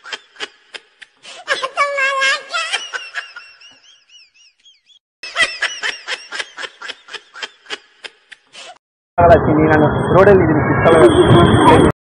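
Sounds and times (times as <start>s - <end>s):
high-pitched giggling laughter: 0.0s - 8.5s.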